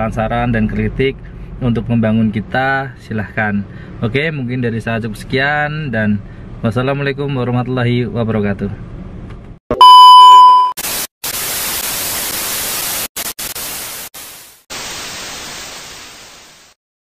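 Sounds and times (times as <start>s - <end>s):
high steady beep: 9.7s - 10.8s
tv static hiss: 10.8s - 16.8s.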